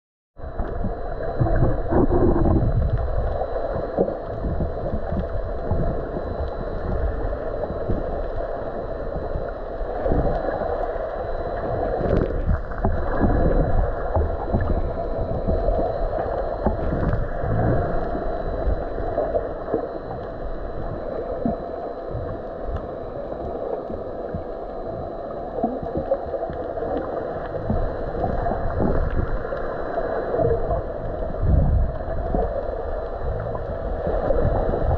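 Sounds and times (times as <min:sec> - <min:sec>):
dull rush of water: 0:00.4 - 0:34.9
low underwater thumps and sloshes: 0:00.5 - 0:07.1, 0:12.1 - 0:18.9.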